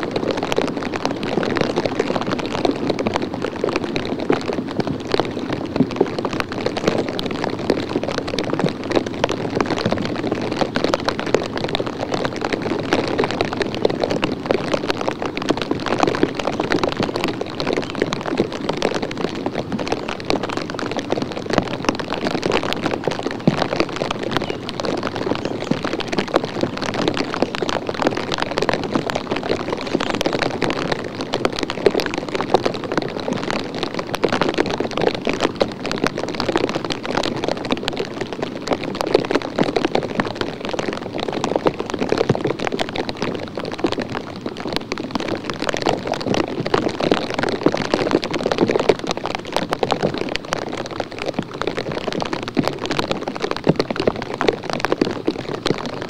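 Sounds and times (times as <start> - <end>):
drizzle pattering on microphone: 0.0 - 56.0.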